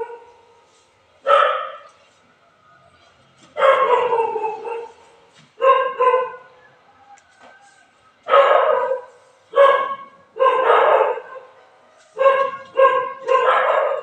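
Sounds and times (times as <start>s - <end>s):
dog barking: 0.0s - 0.4s, 1.2s - 1.9s, 3.6s - 6.6s, 8.2s - 14.0s.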